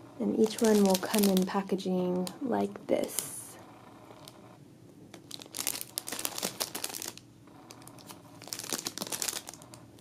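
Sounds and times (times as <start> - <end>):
plastic bag crinkling: 0.4 - 2.3, 5.1 - 10.0.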